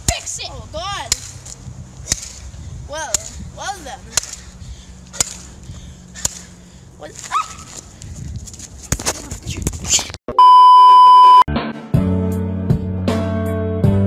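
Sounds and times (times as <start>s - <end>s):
censor beep: 10.3s - 11.5s.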